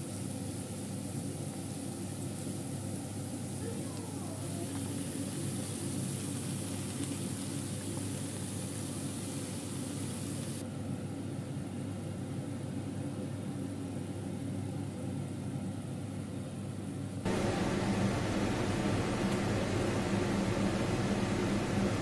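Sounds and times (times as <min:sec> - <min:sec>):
food sizzling in a pan: 0:00.0 - 0:10.6.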